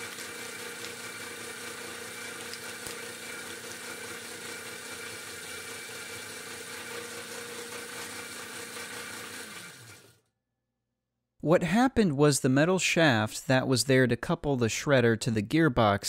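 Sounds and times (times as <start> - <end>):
shredder motor hum and whine: 0.0 - 10.2.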